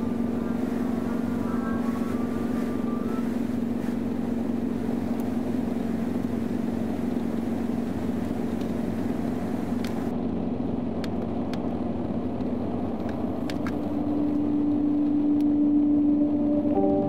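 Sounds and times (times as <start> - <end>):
car driving at highway speed: 0.0 - 17.0.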